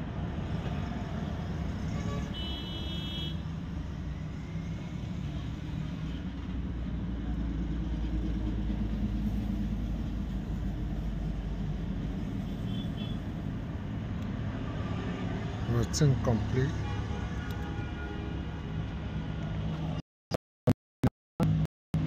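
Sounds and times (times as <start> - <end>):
vehicle engine rumbling: 3.4 - 15.0.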